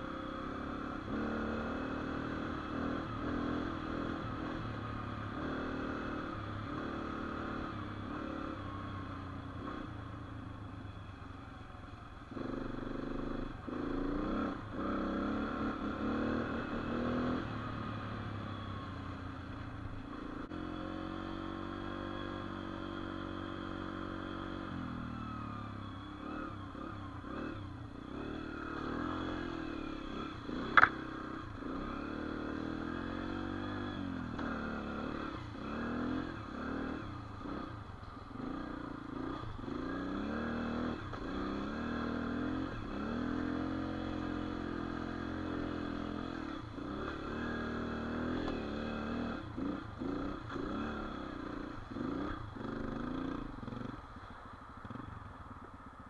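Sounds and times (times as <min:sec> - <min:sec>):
dirt bike engine revving: 0:00.0 - 0:08.6, 0:12.4 - 0:18.0, 0:26.2 - 0:37.7, 0:38.4 - 0:53.9
sharp click: 0:30.7 - 0:31.0.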